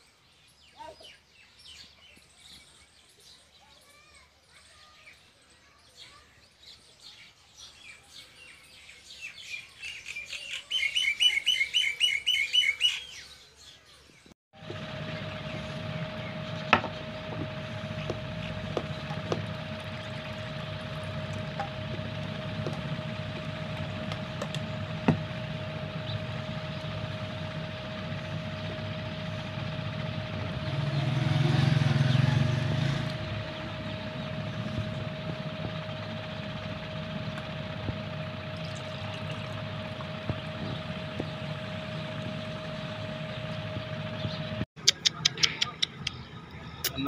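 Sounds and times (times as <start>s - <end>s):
machine hum with high whine: 14.6s - 44.7s.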